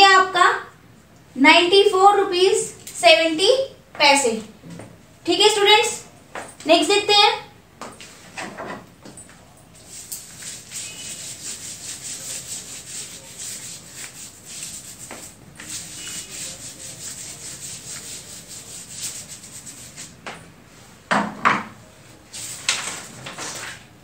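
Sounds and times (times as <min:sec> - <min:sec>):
eraser rubbing on whiteboard: 0:09.9 - 0:20.2.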